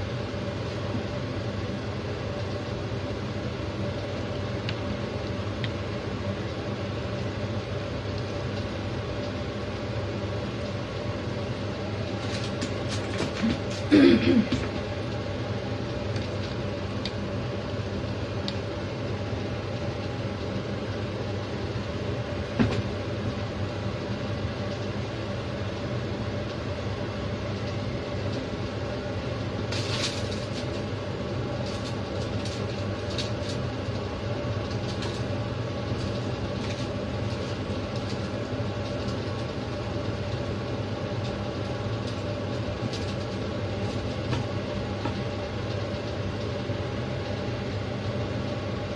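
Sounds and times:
aluminium foil crinkling: 0:12.1 - 0:13.9, 0:29.6 - 0:39.5, 0:41.2 - 0:44.3.

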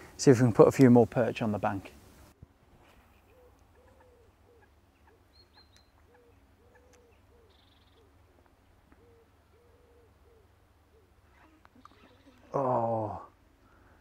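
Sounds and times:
bird calling low notes: 0:03.1 - 0:13.8.

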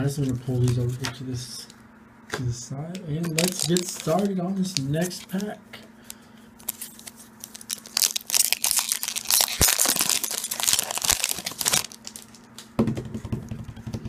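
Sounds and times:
cards rustling: 0:00.2 - 0:01.2, 0:03.2 - 0:12.6
foil wrapper tearing and crinkling: 0:03.2 - 0:05.5, 0:06.6 - 0:12.6.

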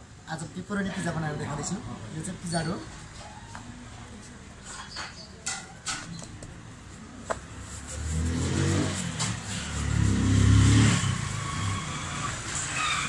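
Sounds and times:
passing vehicle engine: 0:07.5 - 0:13.0.

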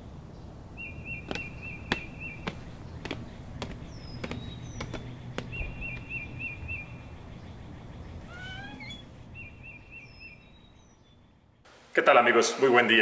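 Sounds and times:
birds chirping: 0:00.0 - 0:11.7
footsteps on hard floor: 0:01.3 - 0:06.3
heavy wooden door creaking: 0:08.2 - 0:09.3.

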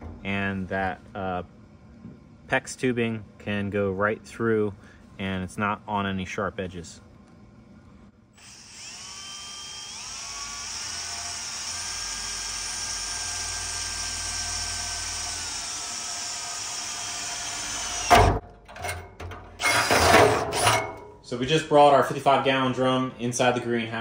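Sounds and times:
cordless drill cutting through steel: 0:08.4 - 0:18.2
sharp knocks and rattling: 0:18.1 - 0:21.1.

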